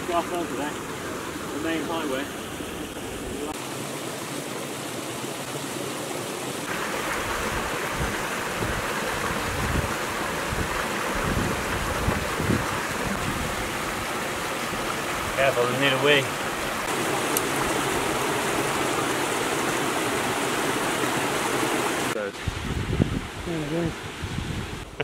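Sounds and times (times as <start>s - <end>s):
stream rushing over rocks: 0.0s - 25.0s
wind rumble on microphone: 7.4s - 13.8s, 22.4s - 25.0s.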